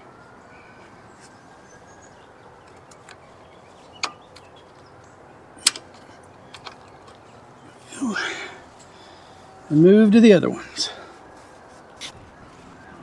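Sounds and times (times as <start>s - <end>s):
hose fitting clicking: 5.6s - 7.2s.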